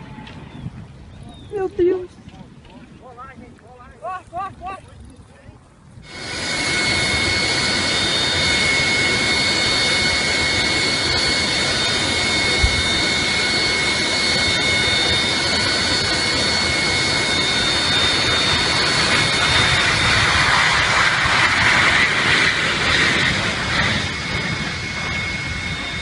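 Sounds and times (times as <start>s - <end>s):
jet engines whining: 3.1s - 26.0s
rushing noise: 6.0s - 26.0s.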